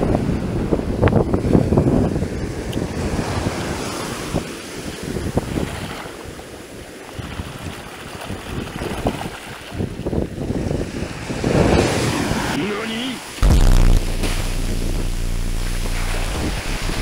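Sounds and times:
wind buffeting microphone: 0.0s - 12.6s.

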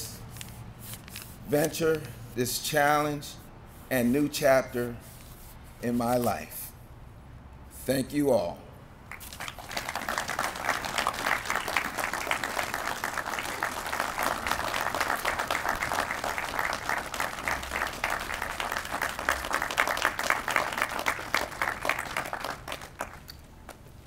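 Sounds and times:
crowd applauding: 9.1s - 23.8s.

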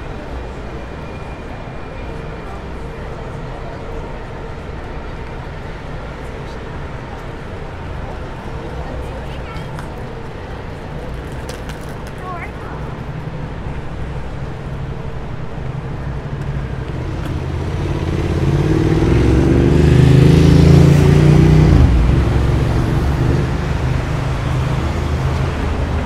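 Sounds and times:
traffic rumble: 0.0s - 26.0s
vehicle engine passing: 15.1s - 26.0s.

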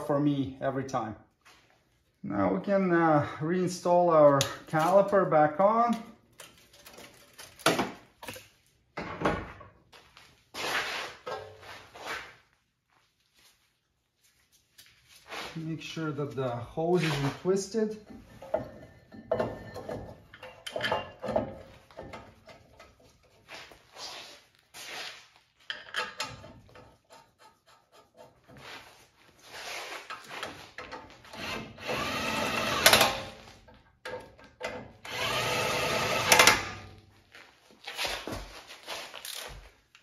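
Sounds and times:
power tool running bolts in: 31.4s - 33.3s, 35.0s - 36.8s.

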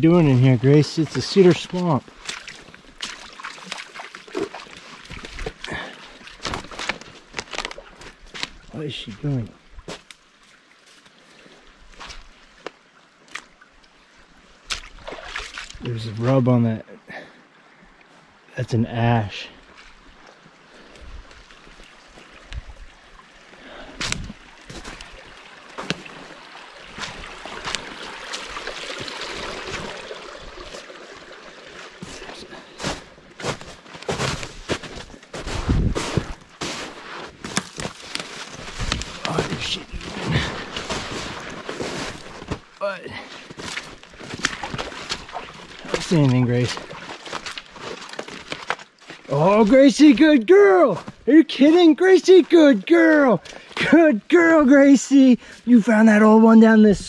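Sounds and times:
branches brushing: 1.2s - 8.7s, 24.0s - 30.0s, 31.8s - 42.8s, 43.4s - 49.7s
footsteps through undergrowth: 1.3s - 9.2s, 24.0s - 29.1s, 31.8s - 49.7s
twigs snapping: 6.4s - 8.6s, 37.4s - 39.5s, 43.7s - 46.1s.

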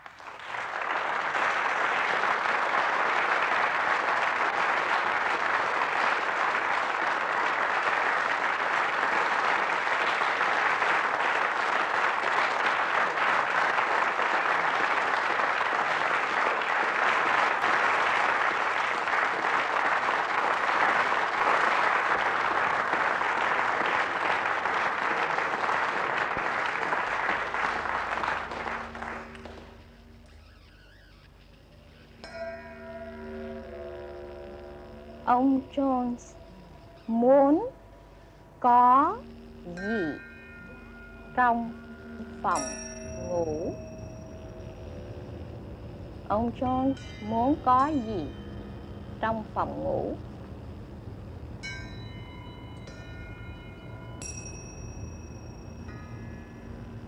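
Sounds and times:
applause: 0.0s - 30.3s, 39.8s - 44.4s.

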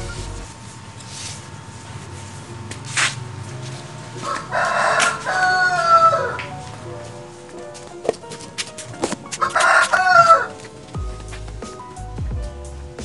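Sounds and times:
rooster crowing: 4.2s - 6.5s, 9.4s - 10.5s.

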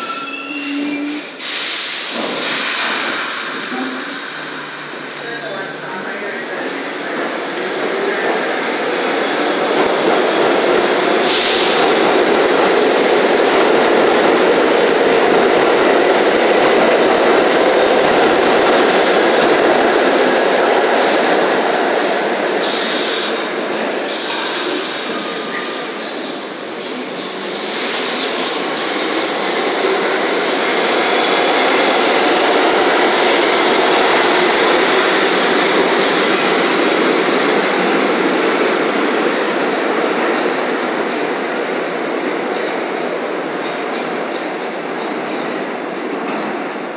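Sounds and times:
subway train running noise: 0.0s - 46.9s
air hiss: 1.2s - 5.5s, 11.2s - 12.2s, 22.6s - 23.5s.

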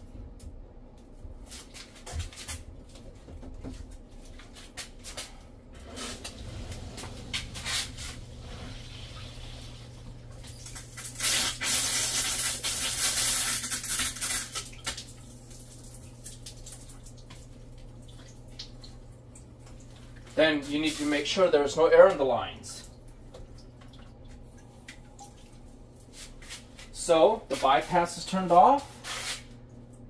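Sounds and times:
steady low hum: 0.0s - 12.8s, 15.0s - 30.0s
air and water hissing from valve: 6.4s - 14.4s.

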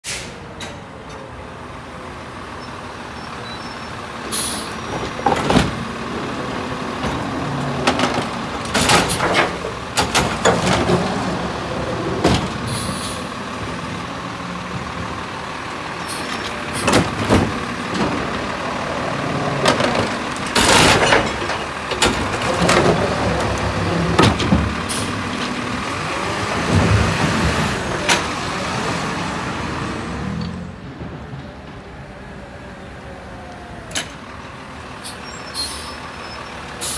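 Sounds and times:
garbage truck engine and hydraulics: 0.0s - 36.9s
carts clanking against hopper: 4.4s - 28.6s.

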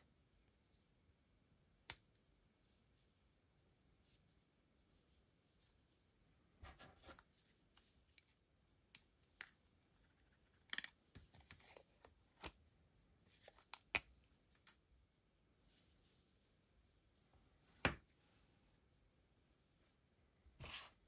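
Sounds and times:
soft rustling and scraping: 15.6s - 18.7s.

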